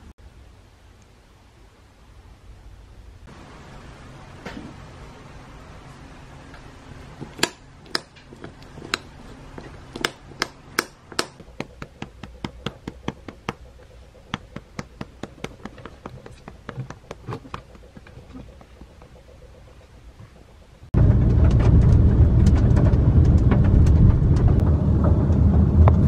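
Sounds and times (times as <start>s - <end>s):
quick taps: 7.3s - 19.3s.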